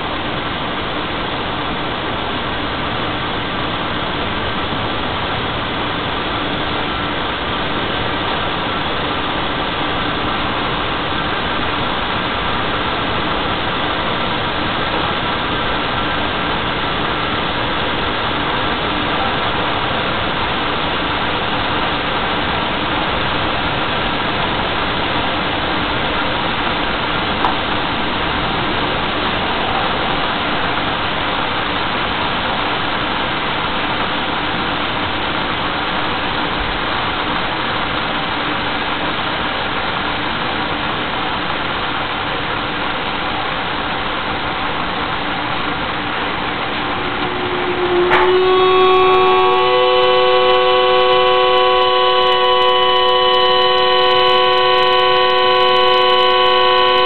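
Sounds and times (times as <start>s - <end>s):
kettle heating rushing noise: 0.0s - 57.0s
kettle whistle: 46.6s - 57.0s.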